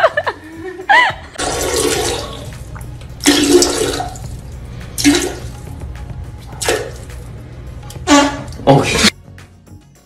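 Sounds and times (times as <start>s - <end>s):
toilet flushing: 1.4s - 4.4s, 5.0s - 5.6s, 6.6s - 7.1s.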